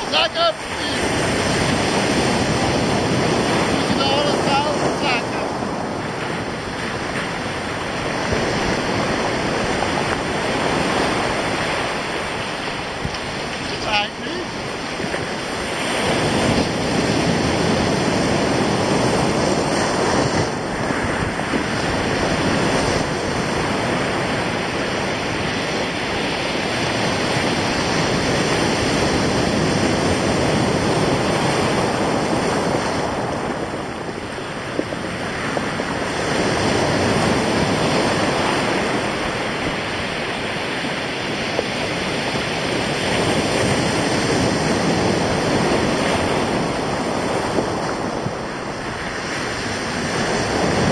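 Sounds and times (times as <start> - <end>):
waves breaking on stony shore: 0.0 - 50.9
wind buffeting microphone: 0.0 - 50.9.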